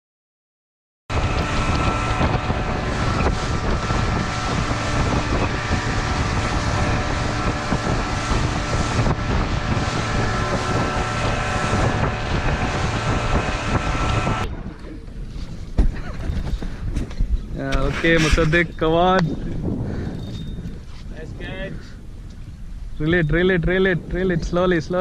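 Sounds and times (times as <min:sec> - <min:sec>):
boat engine running: 0:01.1 - 0:16.9
wind buffeting microphone: 0:01.1 - 0:25.0.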